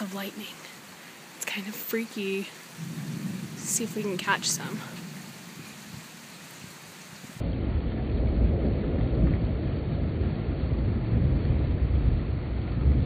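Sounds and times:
rain hiss: 0.0s - 7.7s
thunder rumbling: 2.8s - 6.1s, 7.4s - 13.0s.

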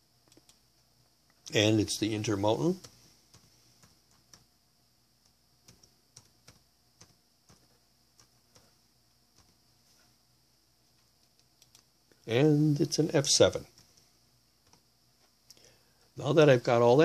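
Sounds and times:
faint keyboard keystrokes: 5.2s - 9.6s, 10.9s - 11.9s.

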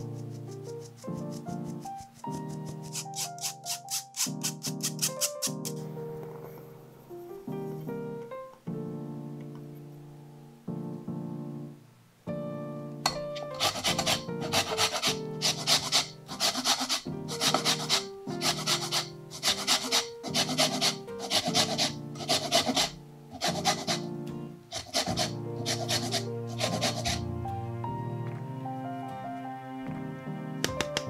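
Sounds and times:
grater scraping lemon rind: 0.0s - 5.8s, 13.4s - 24.1s, 24.7s - 27.2s
soft background music: 0.0s - 31.0s.

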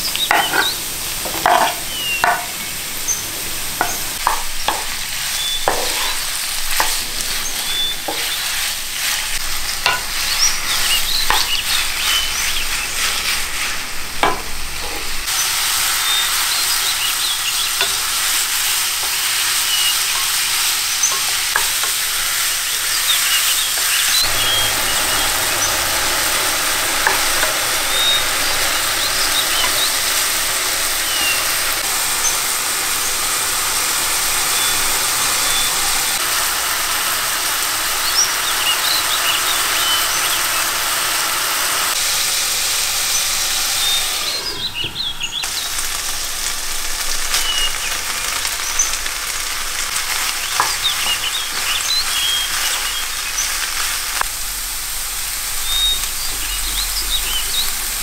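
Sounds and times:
food sizzling in frying pan: 0.0s - 58.0s
utensil stirring and knocking pan: 0.1s - 15.4s, 16.0s - 32.4s, 50.0s - 53.4s.

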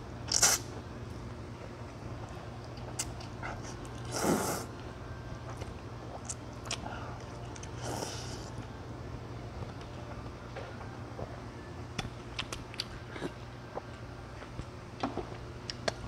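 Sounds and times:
person slurping noodles: 4.0s - 4.7s.

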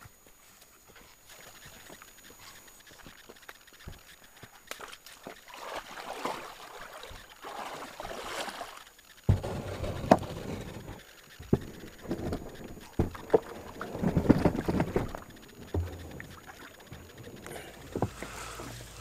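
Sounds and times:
kayak paddle strokes in water: 1.2s - 19.0s
paddle knocking: 9.3s - 19.0s.

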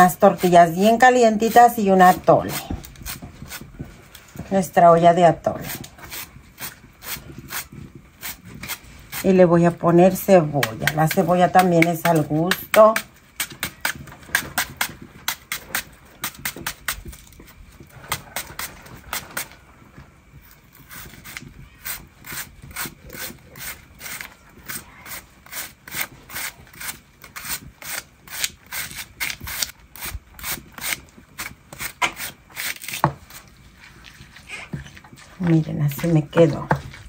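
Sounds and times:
knife cutting onion: 0.0s - 3.7s, 5.4s - 19.6s, 20.4s - 33.4s.

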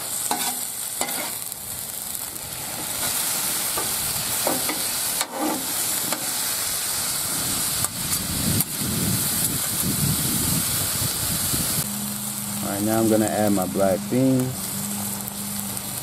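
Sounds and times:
meat and onions sizzling: 0.0s - 16.0s
metal spatula scraping griddle: 0.2s - 1.5s, 2.7s - 6.5s.

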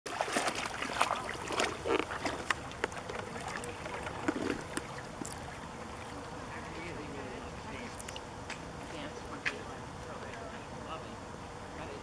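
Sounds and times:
dog splashing in water: 0.1s - 7.1s.

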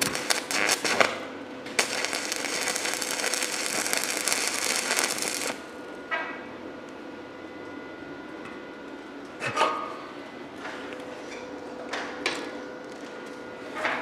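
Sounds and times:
welding arc sizzling and crackling: 0.0s - 5.8s.

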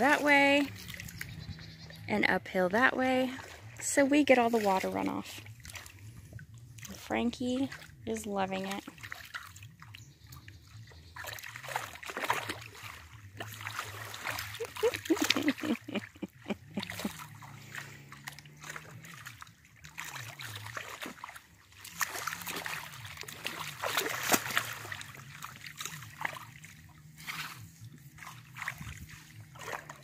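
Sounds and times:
pig splashing in mud: 0.0s - 30.0s.

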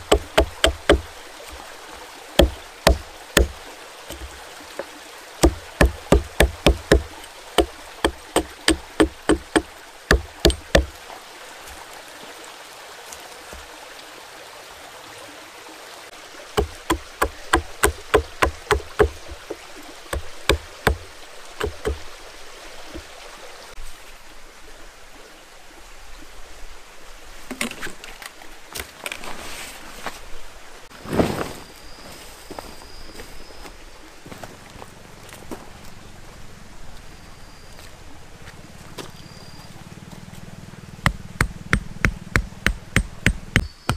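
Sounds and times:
hatchet chopping wooden stick: 0.0s - 1.1s, 2.4s - 4.4s, 5.4s - 11.0s, 16.6s - 22.0s, 41.1s - 43.9s
fabric tent sheet rustling: 30.9s - 33.4s.

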